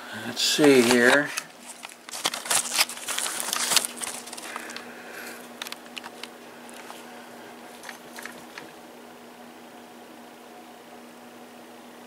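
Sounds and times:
faint steady hum: 0.0 - 12.0
handling clicks and knocks: 5.5 - 7.0, 7.7 - 8.7.

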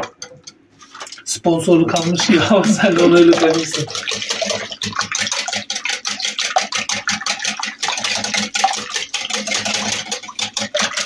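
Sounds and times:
whisk ticking against glass bowl: 1.5 - 11.0.

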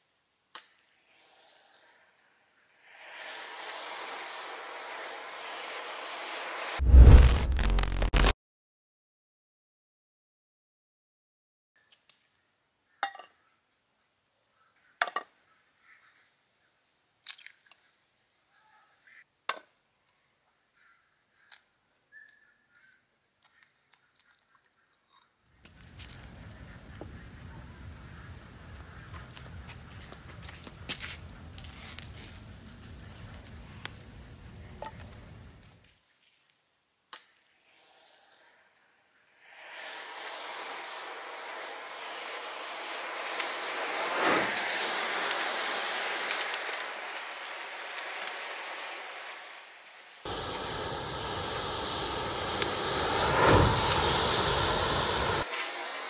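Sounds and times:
match heads hissing and crackling: 2.8 - 8.3, 25.7 - 27.4, 28.7 - 35.8, 39.4 - 49.6, 50.2 - 56.0.

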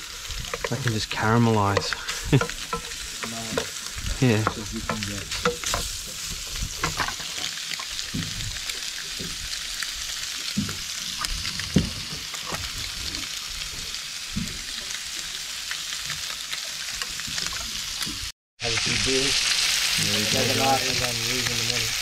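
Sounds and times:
fish sizzling in a frying pan: 0.0 - 22.0
wooden spatula scraping a pan: 0.1 - 7.4.

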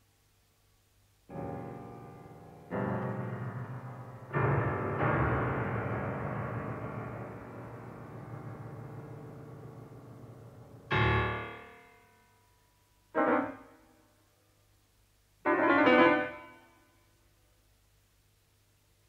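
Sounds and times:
piano chords: 1.3 - 13.9, 15.4 - 16.7.

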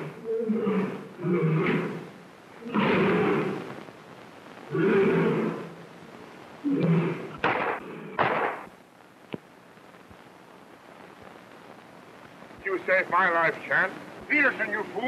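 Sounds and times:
lion roaring and snarling: 0.0 - 3.7, 4.7 - 5.7, 6.6 - 8.2.

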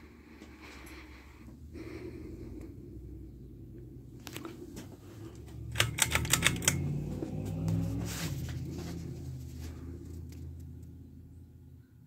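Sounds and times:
rapid sharp clicks: 5.4 - 6.8.

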